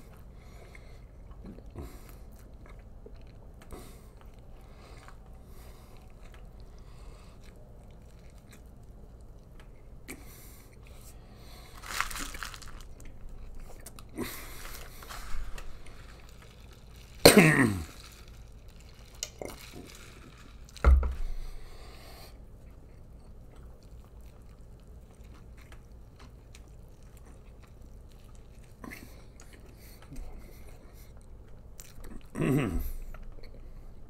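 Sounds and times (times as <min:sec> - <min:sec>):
man chewing with wet mouth noises: 0:00.0 - 0:34.0
cough or burp: 0:17.2 - 0:18.0, 0:32.3 - 0:33.0.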